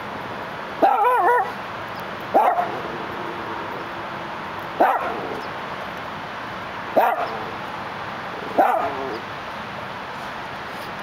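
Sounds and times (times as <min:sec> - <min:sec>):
city noise hum: 0:00.0 - 0:11.0
dog barking: 0:00.8 - 0:01.6, 0:02.4 - 0:02.8, 0:04.8 - 0:05.4, 0:07.0 - 0:07.5, 0:08.5 - 0:09.2.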